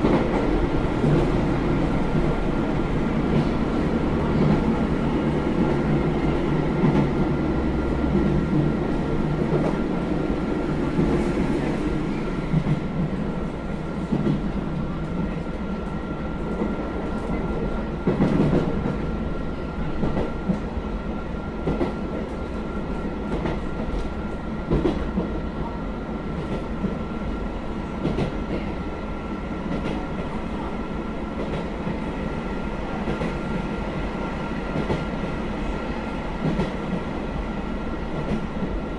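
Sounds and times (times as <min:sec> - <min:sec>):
diesel railcar engine drone: 0:00.0 - 0:31.6.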